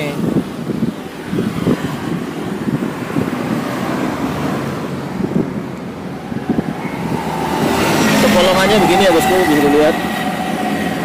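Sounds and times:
street traffic rushing: 0.0 - 11.0
wind buffeting microphone: 0.0 - 11.0.

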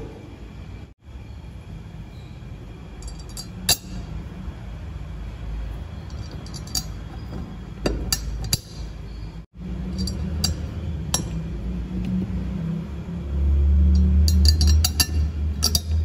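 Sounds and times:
steady low hum: 0.0 - 16.0
screws clinking on metal: 3.0 - 4.0, 6.0 - 9.2, 9.9 - 11.4, 13.9 - 16.0.

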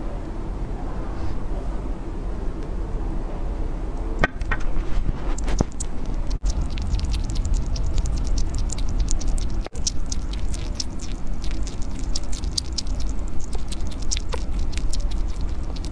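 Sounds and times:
small animal chewing dry food: 4.2 - 15.9.

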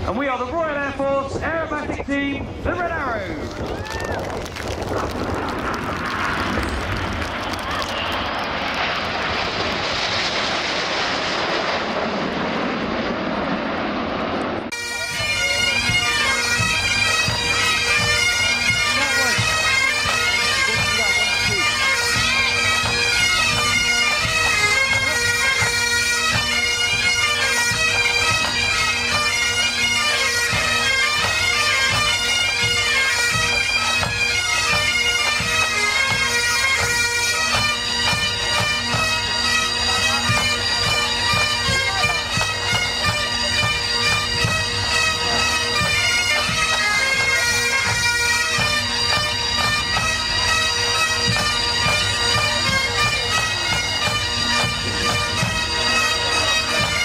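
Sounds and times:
drumbeats: 2.8 - 57.0
bagpipes playing a tune: 14.7 - 57.0.

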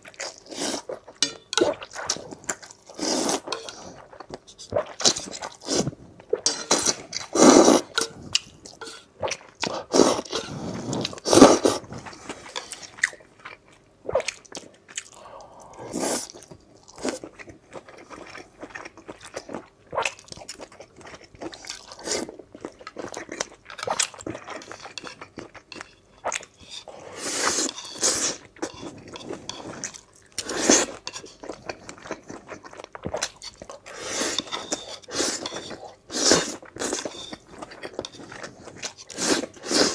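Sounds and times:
noodles slurped: 4.7 - 8.0, 33.2 - 39.9.

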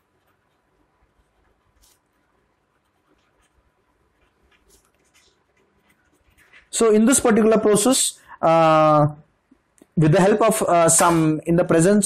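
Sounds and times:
pen scratching on paper: 0.0 - 6.7.

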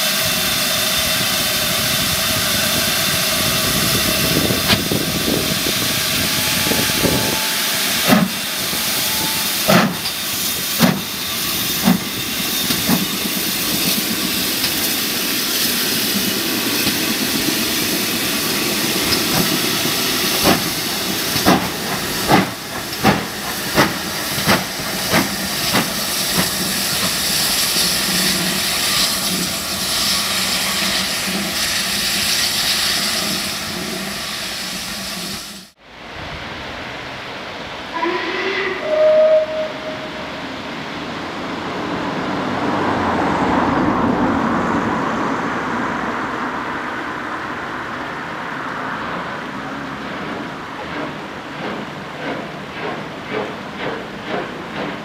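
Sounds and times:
steam locomotive exhaust chuffing: 0.0 - 35.8, 48.5 - 55.0
steam hissing: 0.0 - 40.9, 49.3 - 55.0.

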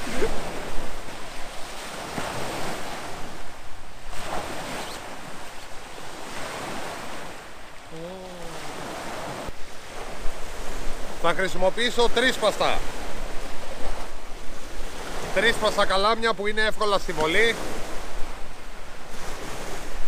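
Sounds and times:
wind on microphone: 0.0 - 11.3
surf washing onto shore: 0.0 - 20.0
man humming: 7.9 - 8.9.

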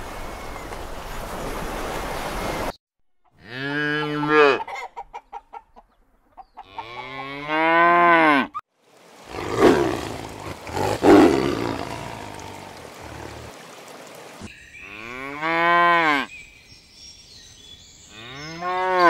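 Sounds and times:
cow mooing: 3.4 - 4.7, 6.6 - 8.6, 9.3 - 13.5, 14.9 - 16.3, 18.1 - 19.0
tiger growling: 9.3 - 13.6.

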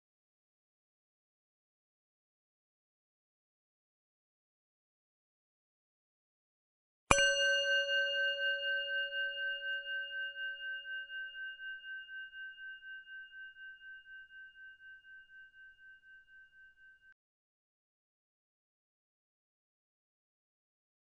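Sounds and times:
bell strike ringing: 7.1 - 16.7.

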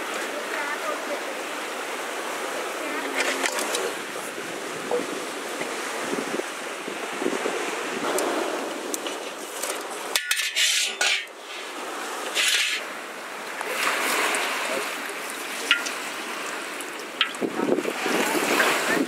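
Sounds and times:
crab shells scraping steel bowl: 8.9 - 11.6, 12.2 - 12.9.

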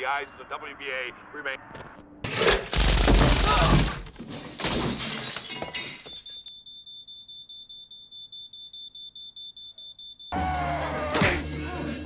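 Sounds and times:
glass shattering: 2.3 - 6.5
pulsing electronic alarm beep: 6.1 - 10.4.

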